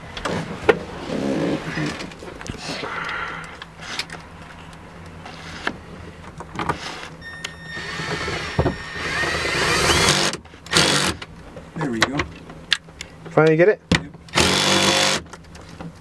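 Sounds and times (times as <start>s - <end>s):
cordless drill motor whine: 7.2s - 11.1s.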